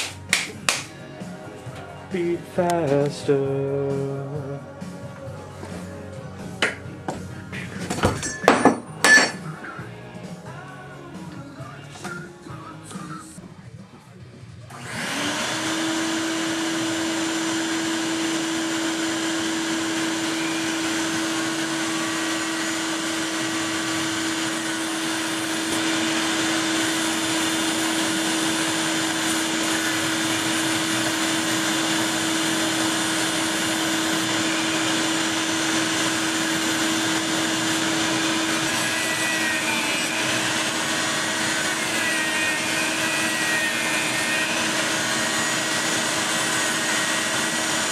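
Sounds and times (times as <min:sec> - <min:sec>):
shop vacuum running: 0:00.0 - 0:47.9
bandsaw cutting fiberglass: 0:14.7 - 0:47.9.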